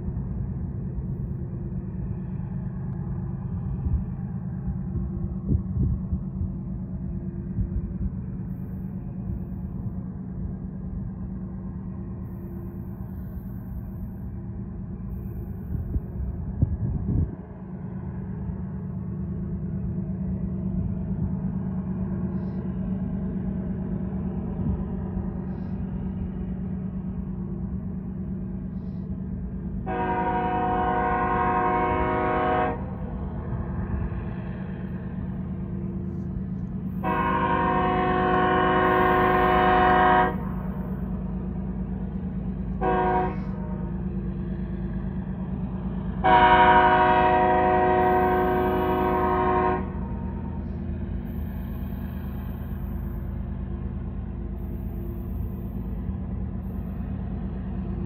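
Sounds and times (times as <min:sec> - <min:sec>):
locomotive chime horn blasts: 0:29.9 - 0:33.0, 0:37.0 - 0:40.6, 0:42.8 - 0:43.8, 0:46.2 - 0:50.0.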